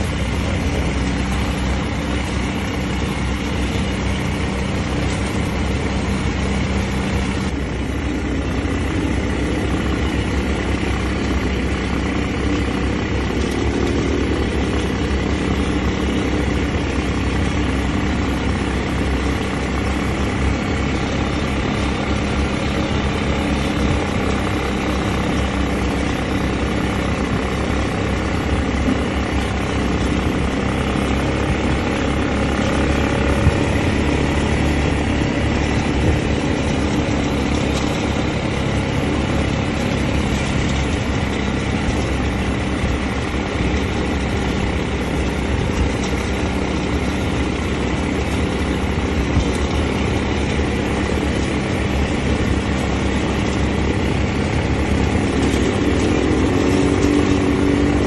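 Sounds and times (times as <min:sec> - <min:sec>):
quad bike engines droning: 0:00.0 - 0:58.0.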